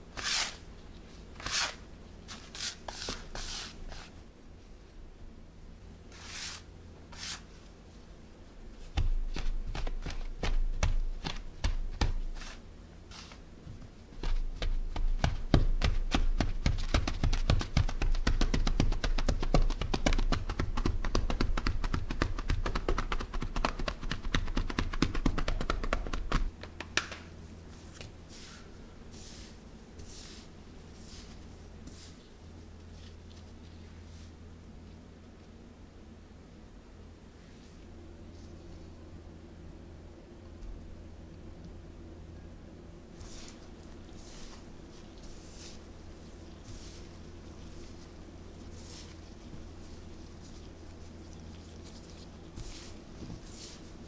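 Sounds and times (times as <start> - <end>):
hands rubbing dough: 0.1 - 4.2, 6.1 - 7.6, 8.8 - 34.4, 43.2 - 54.0.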